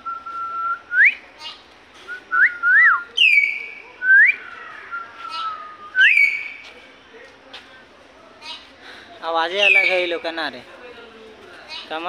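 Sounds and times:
mynas whistling calls: 0.1 - 6.6, 9.6 - 10.2.

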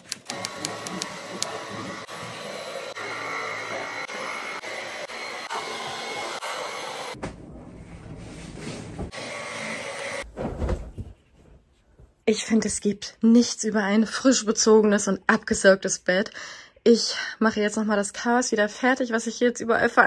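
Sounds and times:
vacuum cleaner whirring: 0.2 - 10.3.

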